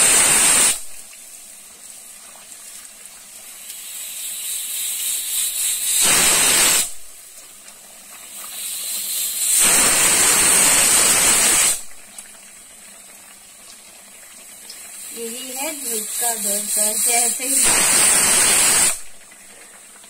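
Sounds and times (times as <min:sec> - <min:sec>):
pressure cooker whistle: 0:00.0 - 0:00.8, 0:03.8 - 0:07.0, 0:08.6 - 0:11.8, 0:15.1 - 0:19.0
batter sizzling in hot oil: 0:00.0 - 0:20.0.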